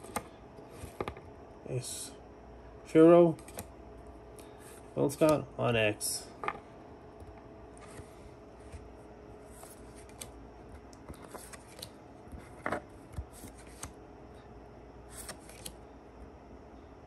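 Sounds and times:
trading cards sliding: 0:07.7 - 0:10.4, 0:11.0 - 0:14.0, 0:15.1 - 0:15.8.

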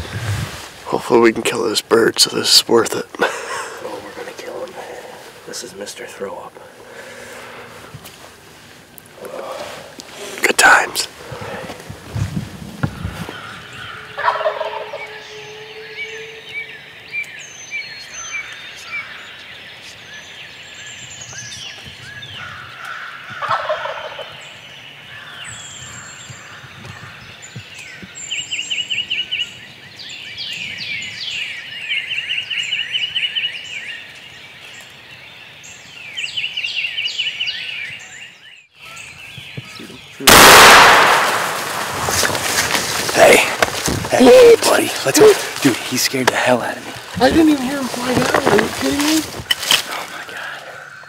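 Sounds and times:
songbirds singing: 0:00.0 - 0:51.0
turkey gobbling: 0:13.9 - 0:15.4, 0:23.4 - 0:24.4.

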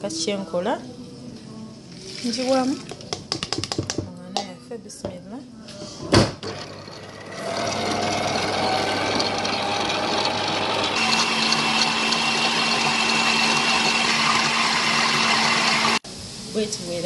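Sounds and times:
stand mixer kneading dough: 0:06.4 - 0:16.0.

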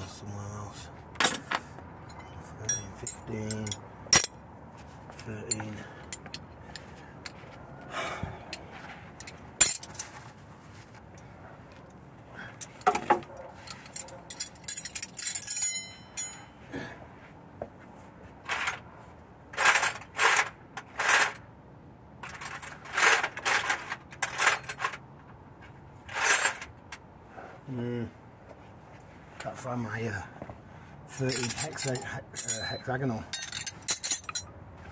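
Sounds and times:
metal tools clinking and rattling: 0:01.2 - 0:04.4, 0:05.2 - 0:07.5, 0:08.5 - 0:10.3, 0:12.5 - 0:16.6, 0:18.4 - 0:18.9, 0:19.6 - 0:21.4, 0:22.2 - 0:25.0, 0:26.1 - 0:26.8, 0:31.1 - 0:34.5
rattling scrapes: 0:08.5 - 0:11.0, 0:12.6 - 0:16.5, 0:19.5 - 0:21.4, 0:22.2 - 0:25.0, 0:25.6 - 0:26.8, 0:31.1 - 0:34.4
small metal piece ringing: 0:14.3 - 0:16.6.

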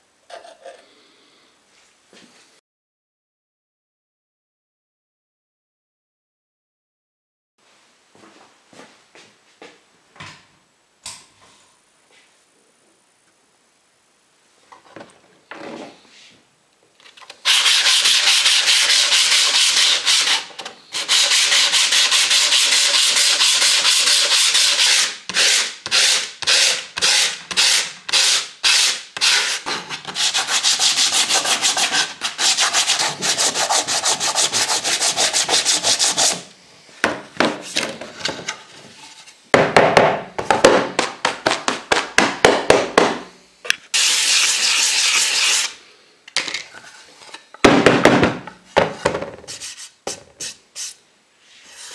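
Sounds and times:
sanding block scrubbing wood: 0:17.5 - 0:36.5, 0:44.0 - 0:45.7.

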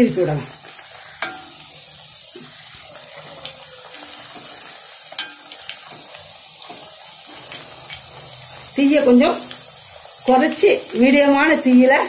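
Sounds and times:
food deep-frying in hot oil: 0:00.0 - 0:12.0
ladle clinking against pan: 0:05.1 - 0:05.6.

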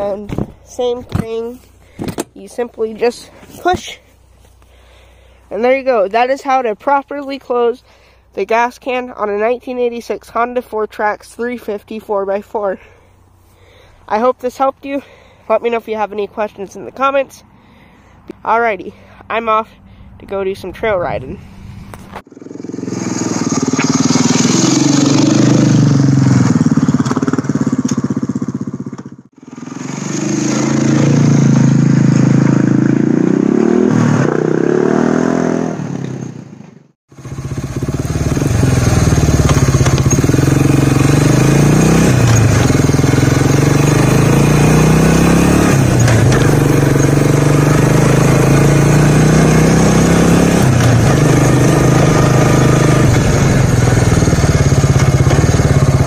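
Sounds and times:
atv engine revving: 0:22.2 - 0:56.0.

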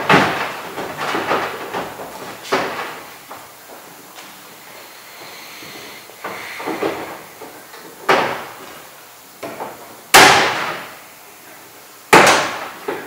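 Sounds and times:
hard knocks on plastic pipe: 0:00.0 - 0:03.4, 0:06.2 - 0:08.7, 0:09.4 - 0:11.0, 0:12.1 - 0:13.0.

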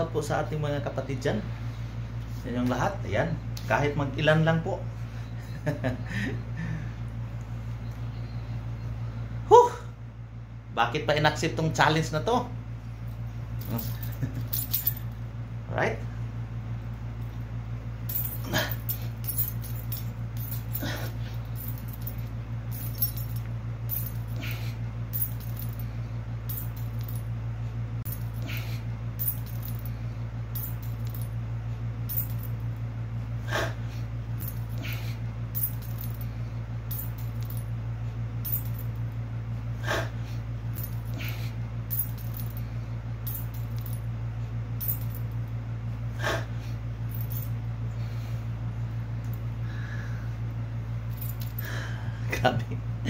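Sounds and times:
steady low hum: 0:00.0 - 0:53.0
metal wallet chain jingling: 0:18.1 - 0:24.6, 0:25.2 - 0:25.8, 0:29.2 - 0:29.9, 0:35.6 - 0:36.2, 0:41.9 - 0:42.6, 0:44.8 - 0:45.4
man exhaling with strain: 0:33.4 - 0:34.0, 0:39.8 - 0:40.4, 0:46.2 - 0:46.8.

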